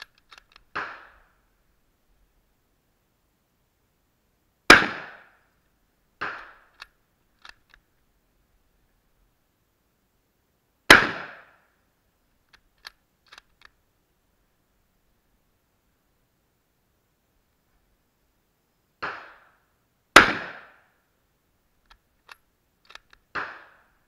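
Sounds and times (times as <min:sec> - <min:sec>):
rifle bolt clicking: 0:00.0 - 0:00.8, 0:06.2 - 0:07.8, 0:12.5 - 0:13.8, 0:21.8 - 0:23.4
rifle shots: 0:00.7 - 0:01.2, 0:04.7 - 0:05.4, 0:06.2 - 0:06.8, 0:10.9 - 0:11.6, 0:19.0 - 0:19.5, 0:20.2 - 0:20.8, 0:23.3 - 0:23.9.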